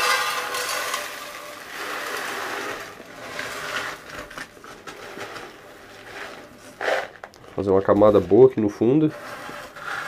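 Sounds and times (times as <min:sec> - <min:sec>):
gravel pouring into a pot: 0:00.0 - 0:04.1.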